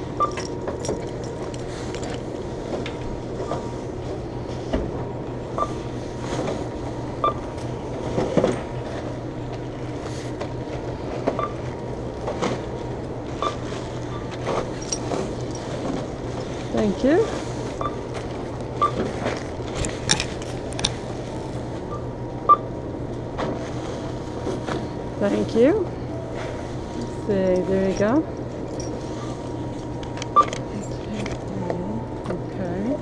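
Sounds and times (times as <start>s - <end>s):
steady low hum: 0.0s - 33.0s
checkout scanner beeps: 0.2s - 0.4s, 5.5s - 5.8s, 7.2s - 7.6s, 11.4s - 11.6s, 13.4s - 14.4s, 16.8s - 18.1s, 18.7s - 19.0s, 21.9s - 22.7s, 30.3s - 30.7s
plastic bags rustling: 12.4s - 21.8s.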